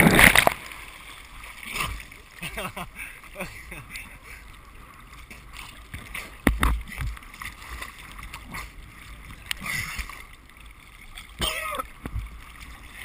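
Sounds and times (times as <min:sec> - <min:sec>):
water slaps: 0:00.0 - 0:00.9
sea water sloshing and splashing: 0:00.0 - 0:13.0.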